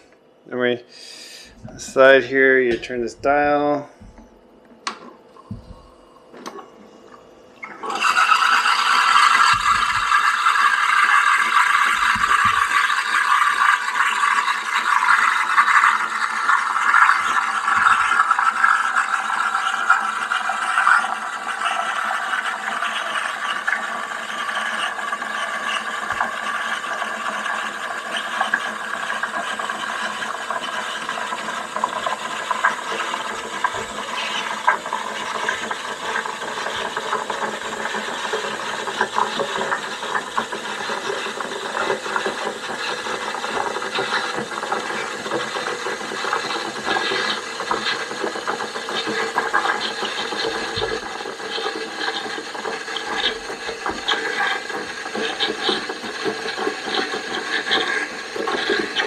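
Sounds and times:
cream frothing crackles: 7.6s - 59.0s
steam wand hissing: 33.0s - 59.0s.

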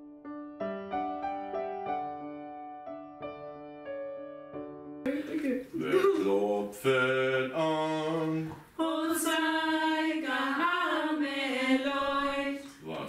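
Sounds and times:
man and woman singing: 5.6s - 13.0s.

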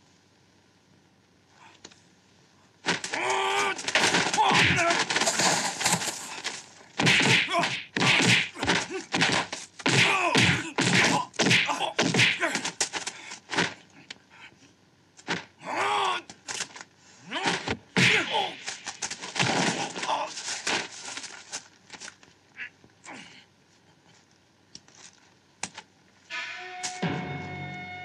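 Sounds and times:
punch and kick impacts: 2.8s - 6.0s, 7.0s - 12.9s, 17.4s - 18.7s
fighters yelling and grunting: 3.1s - 5.2s, 7.1s - 9.3s, 9.9s - 12.8s, 15.6s - 16.3s, 17.3s - 18.7s
man shouting: 3.2s - 5.1s, 7.2s - 9.1s, 10.0s - 12.7s, 17.3s - 18.6s.

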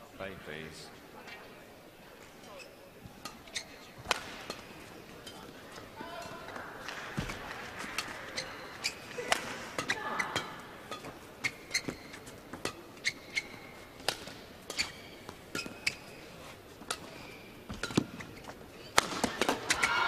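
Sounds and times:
shoe squeaks on court floor: 2.2s - 19.0s
racket hitting shuttlecock: 3.2s - 16.0s, 16.8s - 20.0s.

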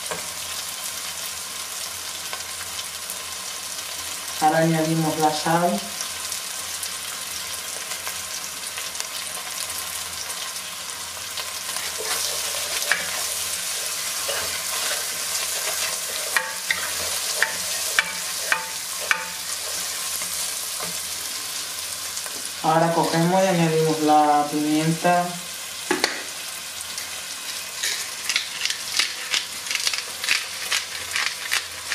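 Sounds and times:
rice sizzling in oil: 0.0s - 31.9s
wooden spoon stirring: 11.9s - 21.0s
spoon knocking against pot: 17.4s - 19.4s.

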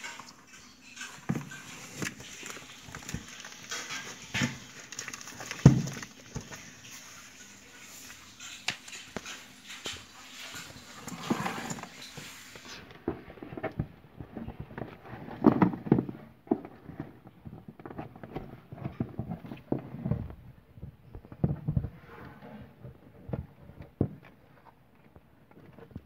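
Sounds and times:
knocks and scrapes in cardboard box: 11.1s - 24.5s.

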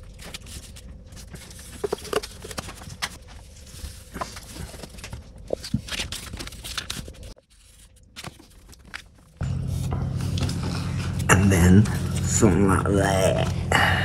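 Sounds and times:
steady low rumble: 9.4s - 14.0s.

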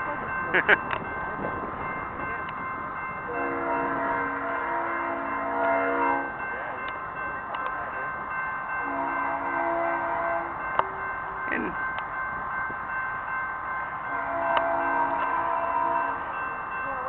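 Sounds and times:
locomotive air horn: 3.3s - 6.3s, 8.8s - 10.6s, 14.1s - 16.2s.

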